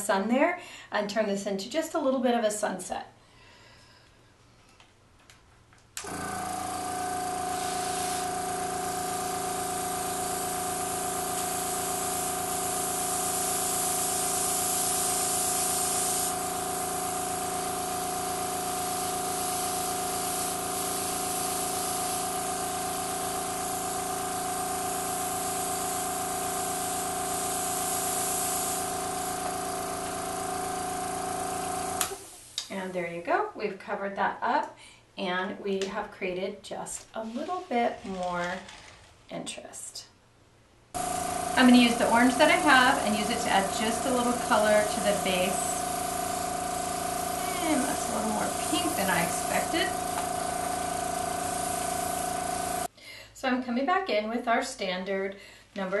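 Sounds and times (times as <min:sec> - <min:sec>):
compressor humming: 0:06.0 - 0:32.6, 0:41.0 - 0:52.9
airbrush spraying hiss: 0:06.1 - 0:32.6, 0:41.0 - 0:52.9.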